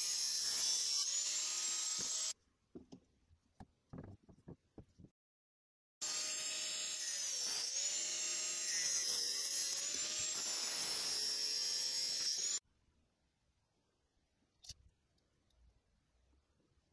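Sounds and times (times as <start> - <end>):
angle grinder cutting steel: 0.0 - 2.4, 6.0 - 12.6.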